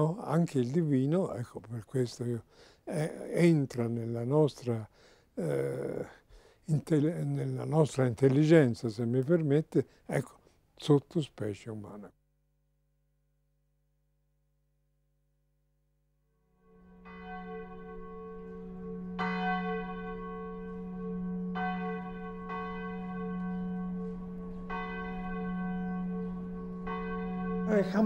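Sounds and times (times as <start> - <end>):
church bells ringing: 16.7 - 28.0.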